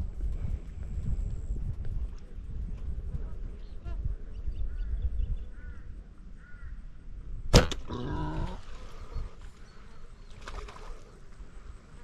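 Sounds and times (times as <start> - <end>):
bow string snap: 7.5 - 8.0.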